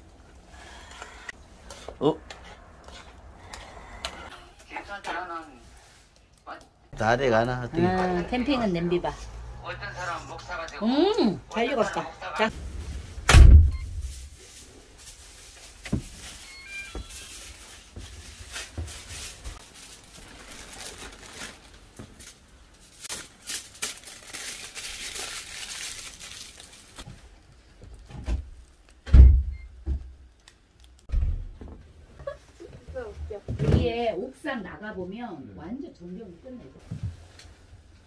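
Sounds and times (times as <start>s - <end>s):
plastic and foil crinkling: 13.9s - 29.0s.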